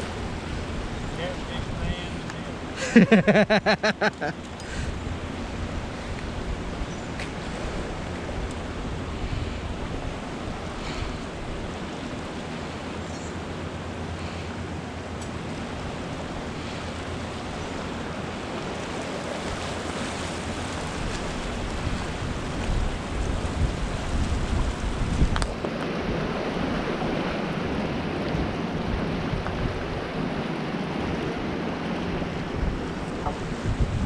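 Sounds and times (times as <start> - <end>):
whitewater rushing: 0.0 - 6.1
wind buffeting microphone: 15.6 - 34.0.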